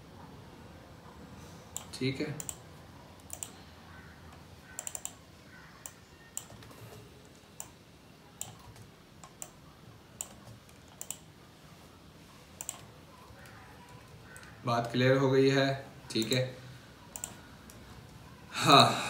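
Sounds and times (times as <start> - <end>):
mouse clicks: 1.7 - 2.6, 3.2 - 3.6, 4.3 - 6.8, 10.2 - 11.3, 12.6 - 14.6, 17.1 - 17.8
keyboard keystrokes: 1.8 - 2.6, 3.2 - 3.6, 4.7 - 5.2, 5.8 - 7.0, 10.2 - 11.3, 12.6 - 14.6, 17.1 - 17.4.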